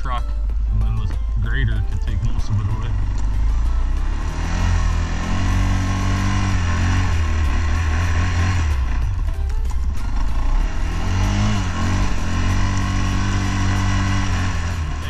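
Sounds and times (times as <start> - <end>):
atv engine running: 0.0 - 15.0.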